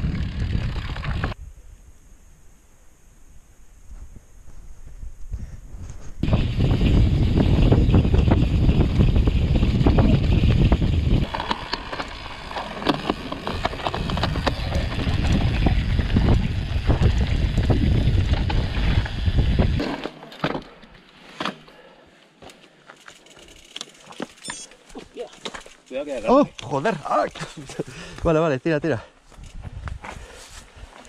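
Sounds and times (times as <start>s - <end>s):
wind buffeting microphone: 0.0s - 1.6s, 4.0s - 11.6s, 13.4s - 19.8s, 29.3s - 30.3s
bike rattling and knocking: 6.2s - 20.8s, 25.2s - 27.6s.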